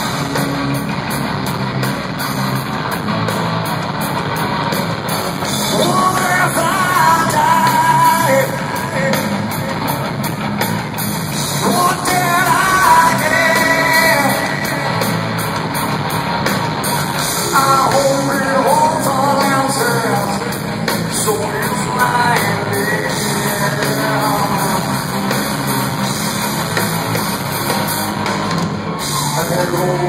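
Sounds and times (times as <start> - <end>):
live rock band playing: 0.0 - 30.0
lead vocalist singing: 5.5 - 10.0, 11.5 - 15.3, 17.4 - 25.6, 29.2 - 30.0.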